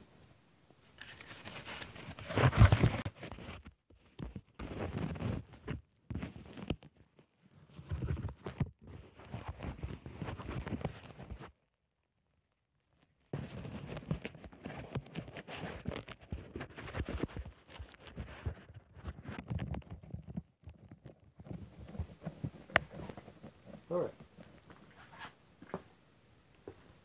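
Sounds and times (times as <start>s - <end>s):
adhesive tape tearing and rustling: 0.9s - 3.6s.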